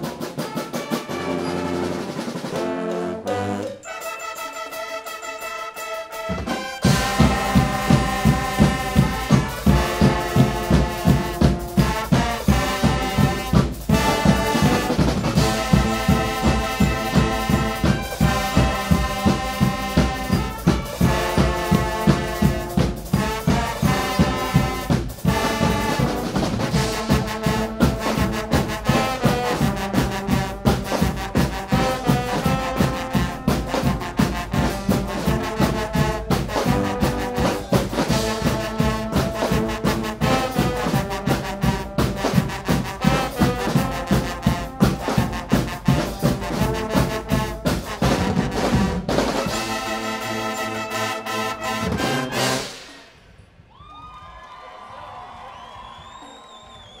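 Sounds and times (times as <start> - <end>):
brass band playing loudly: 0.0 - 53.1
drums and cymbals beat: 0.0 - 53.1.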